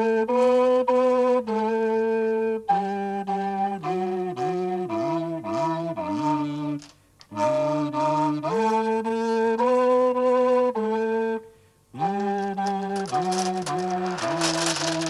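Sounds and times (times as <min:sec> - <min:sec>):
instrumental music with sliding notes: 0:12.0 - 0:15.0.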